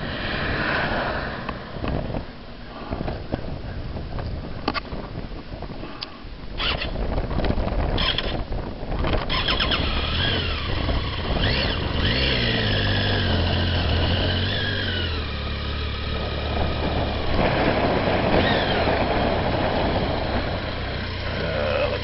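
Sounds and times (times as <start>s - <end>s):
motorcycle engine running: 9.2s - 22.0s.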